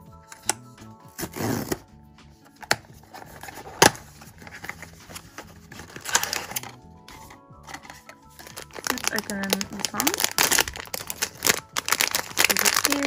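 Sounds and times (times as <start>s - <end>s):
foil bag rustling: 4.4s - 6.7s, 7.7s - 13.0s.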